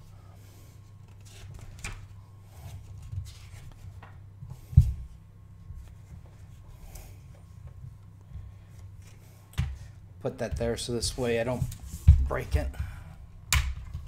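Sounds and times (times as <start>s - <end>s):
paper pages rustling and flipping: 1.0s - 4.2s.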